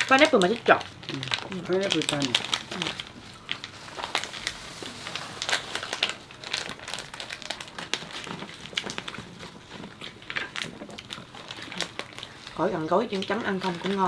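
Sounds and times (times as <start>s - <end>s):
chewing and handling food: 0.0s - 14.0s.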